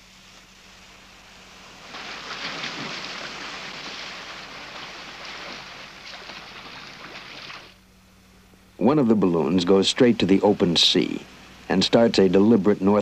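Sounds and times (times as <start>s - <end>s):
sea water splashing: 1.7s - 7.8s.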